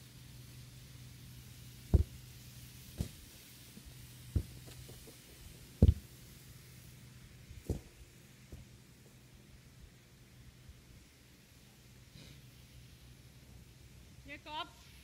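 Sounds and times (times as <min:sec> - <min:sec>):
faint steady hum: 0:00.0 - 0:15.0
football thumping on grass: 0:01.9 - 0:02.2, 0:03.0 - 0:03.3, 0:04.3 - 0:05.1, 0:05.8 - 0:06.1, 0:07.6 - 0:08.0.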